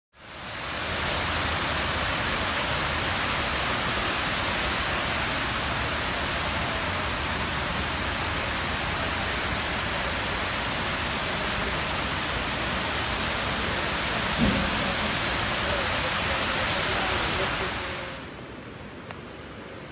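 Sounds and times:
water pouring down stone walls: 0.3 - 18.2
low thump: 14.3 - 15.2.

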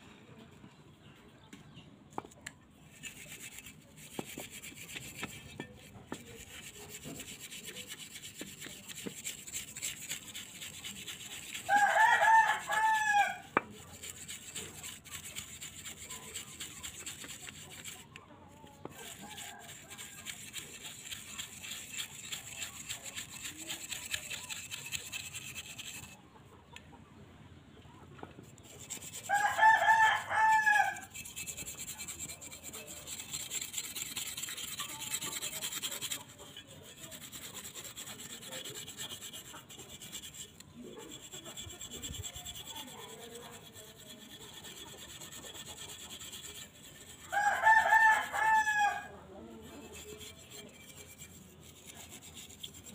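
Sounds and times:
wire brush scrubbing metal: 2.9 - 26.2, 28.4 - 52.9
rooster crowing: 11.7 - 13.5, 29.2 - 31.1, 47.3 - 49.1.

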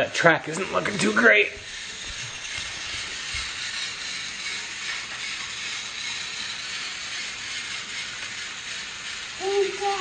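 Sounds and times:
toy train motors whirring: 0.0 - 10.0.

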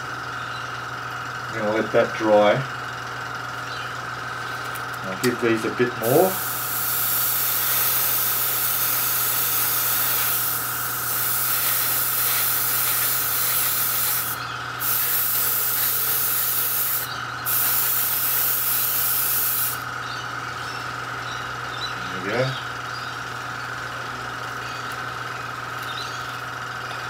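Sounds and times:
airbrush spraying hiss: 6.0 - 19.8.

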